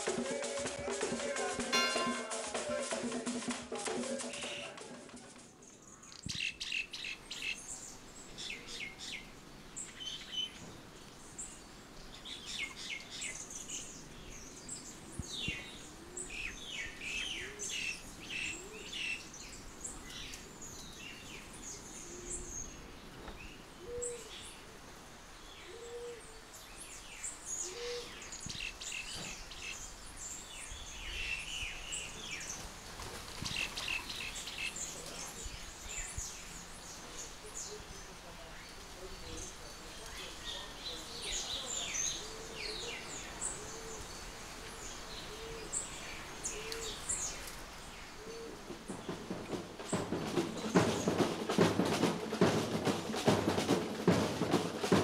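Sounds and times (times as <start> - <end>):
birds chirping: 0.0 - 55.0
low bird notes: 1.6 - 2.8.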